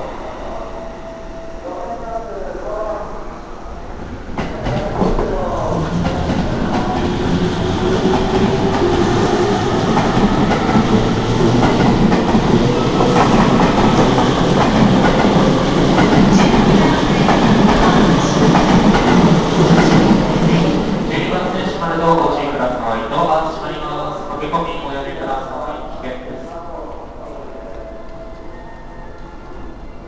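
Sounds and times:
electric train wheels on rail: 0:04.0 - 0:21.5.

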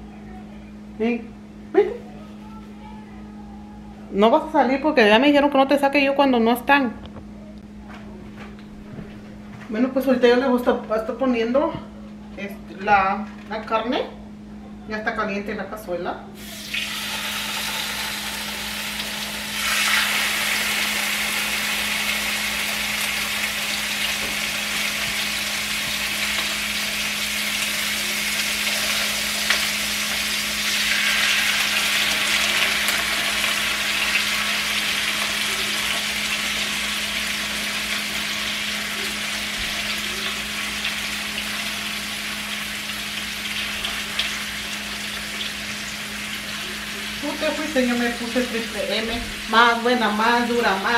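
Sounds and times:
meat sizzling in oil: 0:16.4 - 0:50.9.

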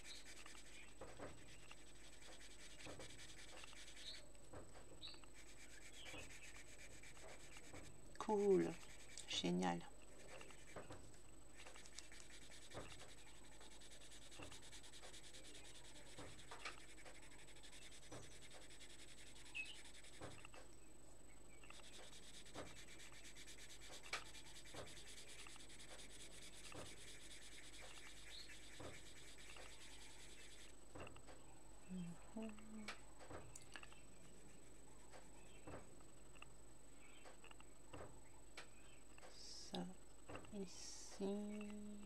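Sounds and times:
pencil scratching on paper: 0:00.0 - 0:04.3, 0:05.0 - 0:20.6, 0:21.7 - 0:30.8.

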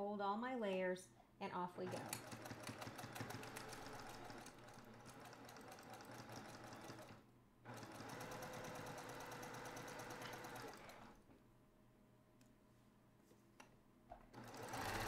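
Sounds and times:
sewing machine stitching: 0:01.8 - 0:11.2, 0:14.3 - 0:15.0.

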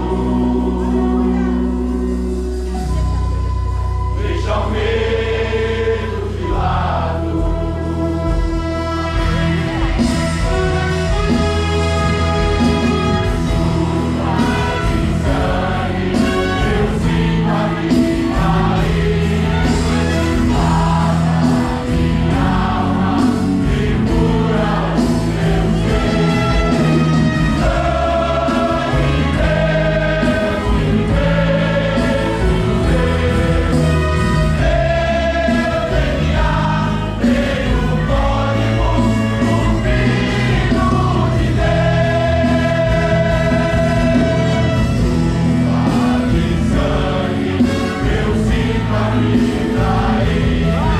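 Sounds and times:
choir singing worship song: 0:00.0 - 0:50.9
instrumental backing with bass: 0:00.0 - 0:50.9.

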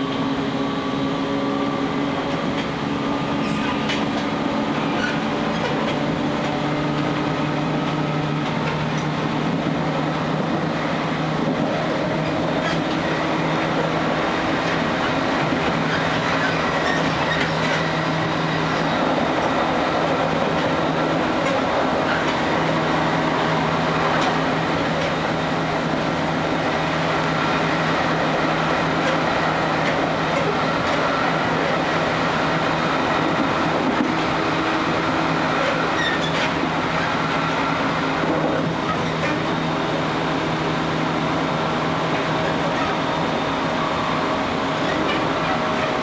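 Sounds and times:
train rumble inside car: 0:00.0 - 0:46.0
wheels clicking over rail joints: 0:02.2 - 0:09.8, 0:11.2 - 0:31.8, 0:32.5 - 0:39.8, 0:44.8 - 0:46.0.

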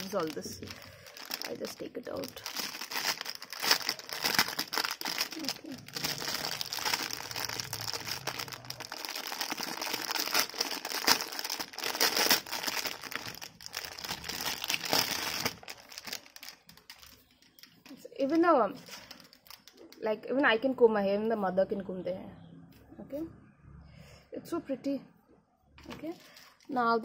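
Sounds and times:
plastic wrapping crinkling: 0:00.0 - 0:20.1.

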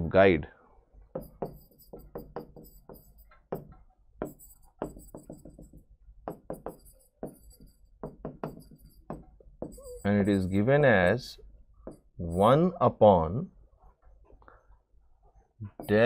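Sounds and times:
stylus tapping on touchscreen: 0:01.1 - 0:10.6.

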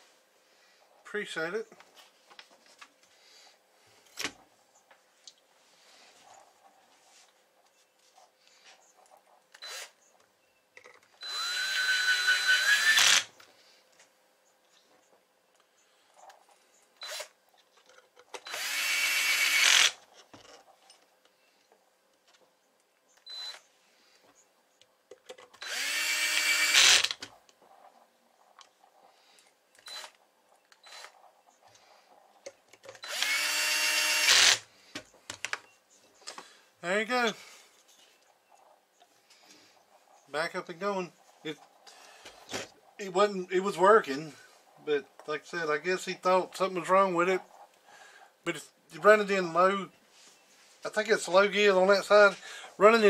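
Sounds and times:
cordless drill whining: 0:09.6 - 0:10.0, 0:11.2 - 0:13.3, 0:17.0 - 0:17.3, 0:18.4 - 0:20.0, 0:25.6 - 0:27.2, 0:29.8 - 0:30.2, 0:30.8 - 0:31.2, 0:33.0 - 0:34.6.

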